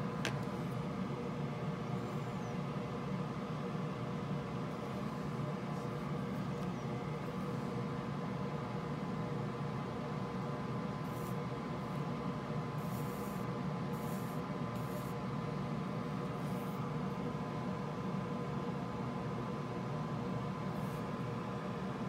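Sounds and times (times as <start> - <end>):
steady low hum: 0.0 - 22.0
flux sizzling under soldering iron: 11.1 - 11.4, 12.8 - 15.2.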